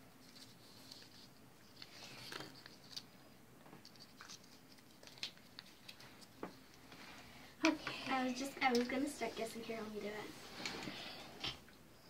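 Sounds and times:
paper being folded: 0:00.2 - 0:03.2, 0:03.8 - 0:06.9.

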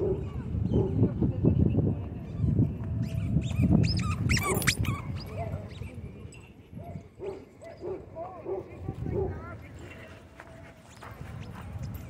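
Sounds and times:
dogs squeaking: 0:02.2 - 0:06.5.

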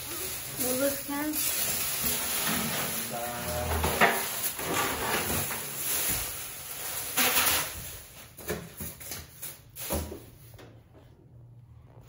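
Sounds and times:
rustling and handling noise: 0:00.0 - 0:12.0.

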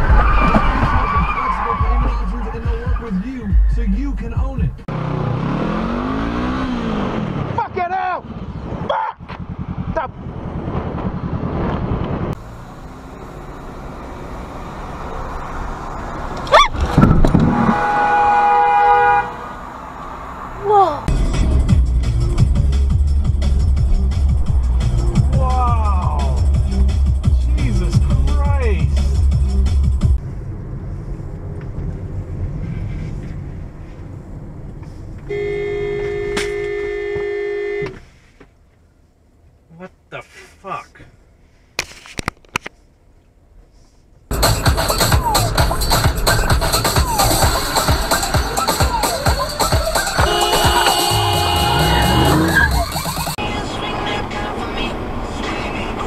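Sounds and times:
car engine hum: 0:00.0 - 0:40.1, 0:42.6 - 0:56.0
motorcycle engine running: 0:08.5 - 0:11.6
road noise inside car: 0:09.4 - 0:56.0.

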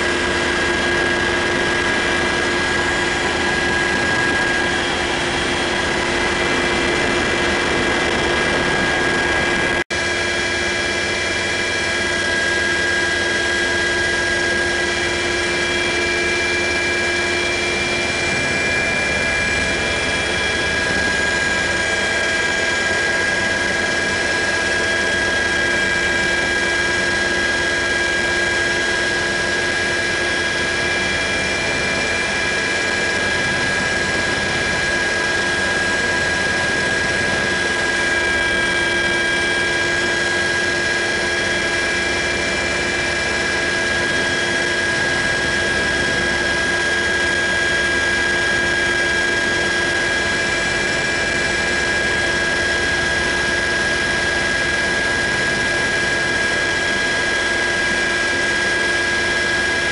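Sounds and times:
helicopter rotor and turbine noise: 0:00.0 - 0:59.9.

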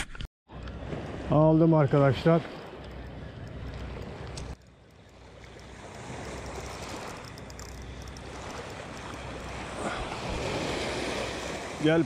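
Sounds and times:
small waves on pebble beach: 0:05.3 - 0:07.4, 0:08.2 - 0:12.0.

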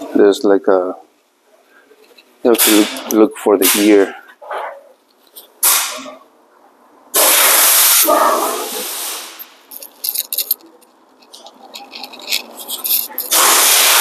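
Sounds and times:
spray hiss: 0:07.2 - 0:09.5, 0:13.3 - 0:14.0.

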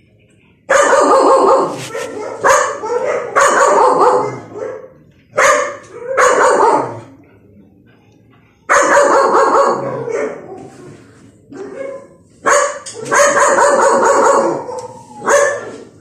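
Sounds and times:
dog barking: 0:00.7 - 0:07.1, 0:08.7 - 0:10.7, 0:11.5 - 0:15.9.

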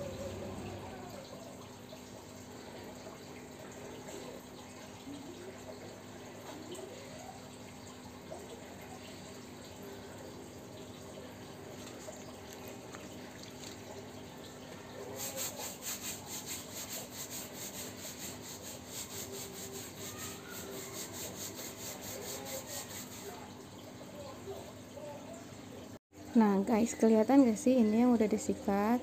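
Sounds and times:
brush scrubbing fabric cushion: 0:15.2 - 0:23.4.

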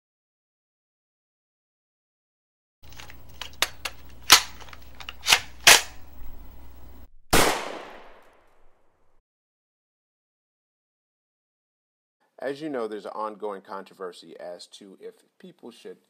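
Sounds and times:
low hum: 0:02.8 - 0:09.2
big echoing gunshot: 0:07.3 - 0:08.6
gunshots: 0:07.3 - 0:08.6.

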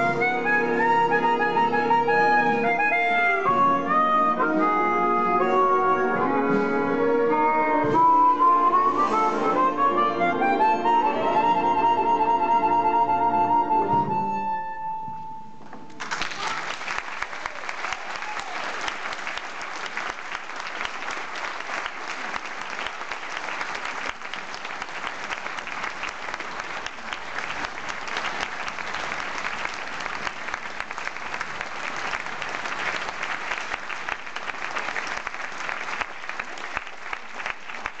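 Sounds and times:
audience applauding: 0:15.9 - 0:38.0.

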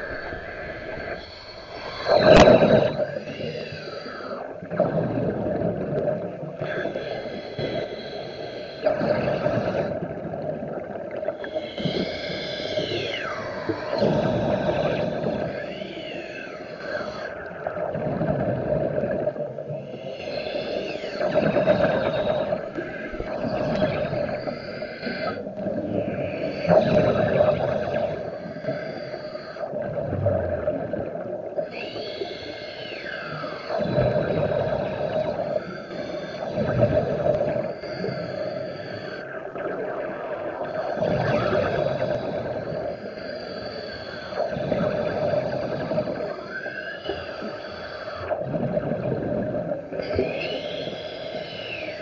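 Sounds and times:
faint high whine: 0:00.0 - 0:04.9, 0:31.6 - 0:48.2
rumbling bubbles: 0:00.0 - 0:07.8, 0:08.8 - 0:28.5, 0:29.7 - 0:31.9, 0:33.3 - 0:35.7, 0:36.3 - 0:42.9, 0:48.3 - 0:50.8
wavering whine: 0:00.0 - 0:10.1, 0:11.5 - 0:18.1, 0:19.3 - 0:29.6, 0:31.6 - 0:48.1
diver breathing underwater: 0:00.0 - 0:52.0.

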